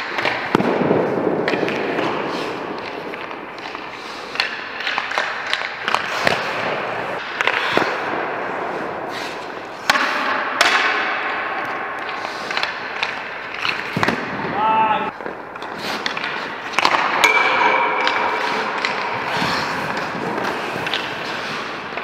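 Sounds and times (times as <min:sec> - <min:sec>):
skates scraping on ice: 0:00.0 - 0:17.3, 0:18.0 - 0:22.0
hockey stick clacks and knocks: 0:00.0 - 0:22.0.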